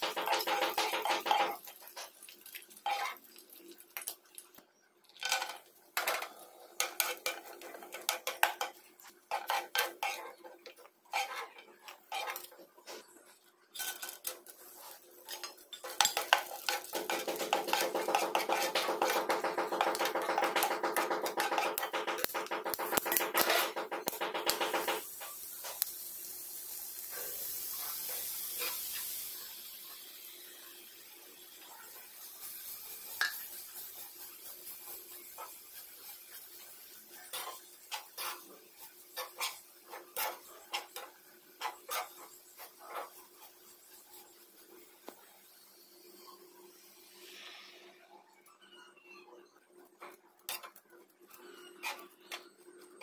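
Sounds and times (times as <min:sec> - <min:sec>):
metal spoon scraping frying pan: 0:00.0 - 0:02.1, 0:05.2 - 0:25.8, 0:33.2 - 0:44.3, 0:50.0 - 0:53.0
frying sizzle: 0:00.0 - 0:53.0.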